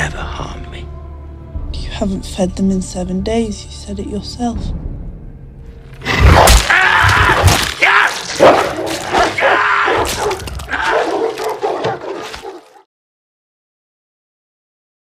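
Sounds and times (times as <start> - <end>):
hounds growling: 6.0 - 12.8
dogs biting and tearing: 6.2 - 12.8.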